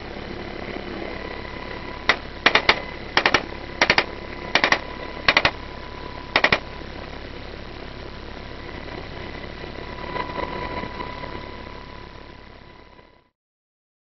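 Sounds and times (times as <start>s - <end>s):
helicopter cabin noise: 0.0s - 13.0s
bursts of sharp cracks: 2.1s - 5.6s, 6.3s - 6.6s.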